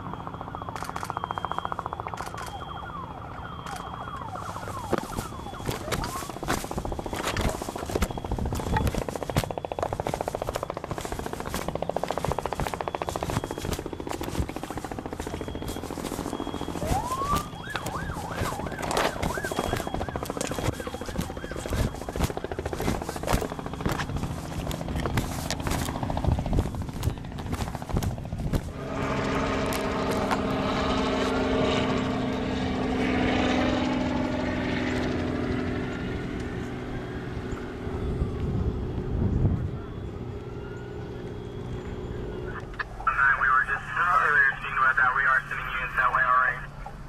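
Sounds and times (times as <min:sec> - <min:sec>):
siren wailing: 0:00.0 - 0:47.0
camera handling knocks and rubbing: 0:04.8 - 0:28.7.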